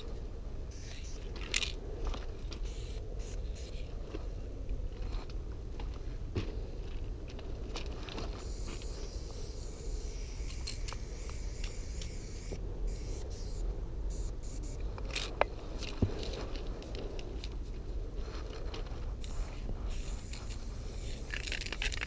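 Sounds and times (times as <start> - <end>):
low rumble: 0.0 - 21.4
spray paint can hissing: 0.7 - 1.2, 2.6 - 3.8, 8.4 - 14.8, 19.2 - 22.0.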